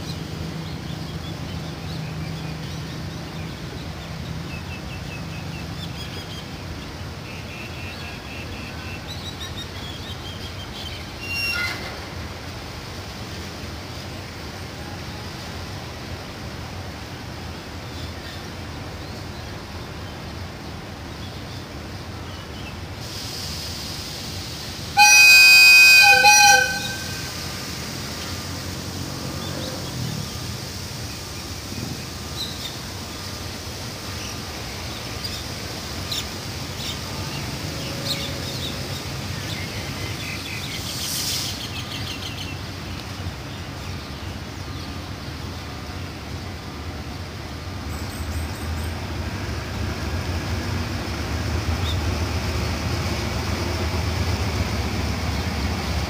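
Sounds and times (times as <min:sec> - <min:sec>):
locomotive low rumble: 0:23.8 - 0:56.0
locomotive air horn: 0:24.9 - 0:27.7.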